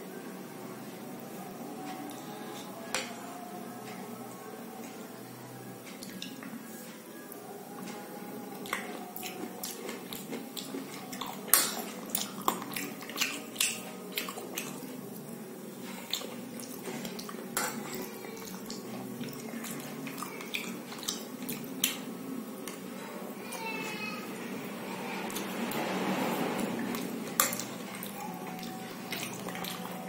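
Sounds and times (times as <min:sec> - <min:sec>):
mouth sounds of eating: 0:07.3 - 0:23.0.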